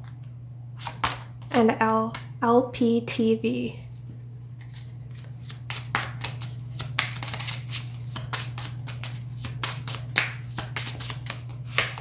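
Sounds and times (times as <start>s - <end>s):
cards being shuffled: 0.0s - 1.6s, 4.5s - 12.0s.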